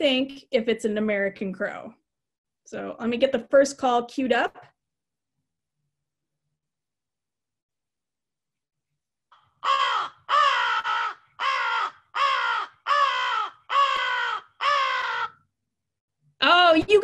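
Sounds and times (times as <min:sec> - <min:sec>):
crow cawing: 0:09.3 - 0:15.5.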